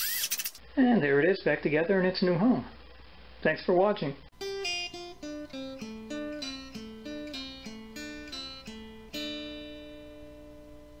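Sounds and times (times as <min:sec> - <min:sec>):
acoustic guitar plucked notes: 0:04.4 - 0:11.0.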